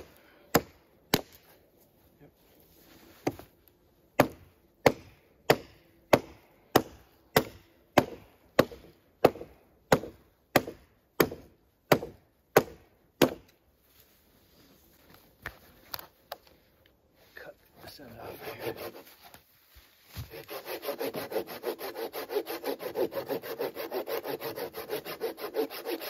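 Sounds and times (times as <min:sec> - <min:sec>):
blade chopping wooden log: 0:00.0 - 0:01.4, 0:03.2 - 0:03.5, 0:04.2 - 0:13.6.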